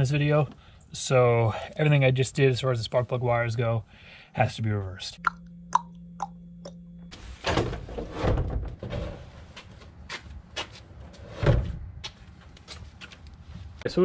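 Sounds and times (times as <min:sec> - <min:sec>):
low hum: 0:05.2 - 0:07.4.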